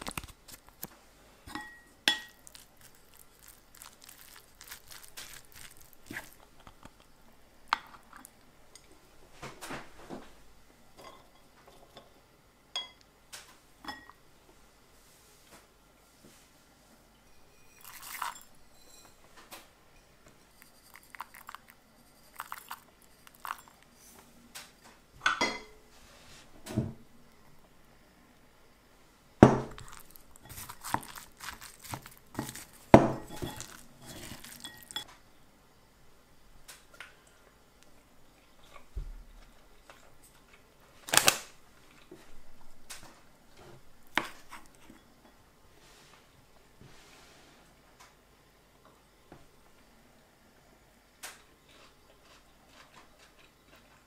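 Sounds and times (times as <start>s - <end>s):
seeds clinking on ceramic bowl: 1.5s - 6.8s, 17.4s - 19.2s, 20.4s - 23.9s, 29.7s - 35.1s
seeds rustling: 2.1s - 6.6s, 17.8s - 18.6s, 20.5s - 24.1s, 29.7s - 35.0s.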